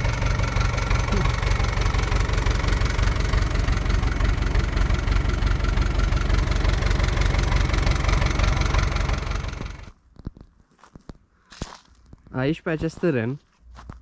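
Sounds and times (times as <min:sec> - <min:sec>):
tractor diesel engine running: 0:00.0 - 0:10.0.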